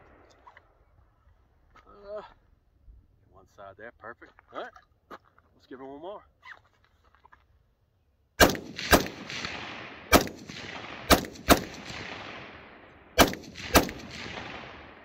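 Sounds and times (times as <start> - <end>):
rifle shots with echo: 8.4 - 15.0.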